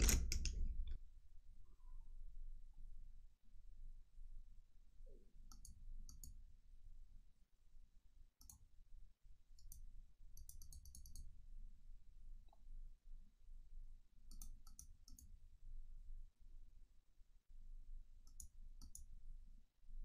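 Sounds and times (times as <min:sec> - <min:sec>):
computer mouse clicks: 0:05.5 - 0:06.4, 0:08.4 - 0:08.6, 0:09.6 - 0:09.8, 0:10.4 - 0:11.3, 0:14.3 - 0:15.3, 0:18.2 - 0:19.1.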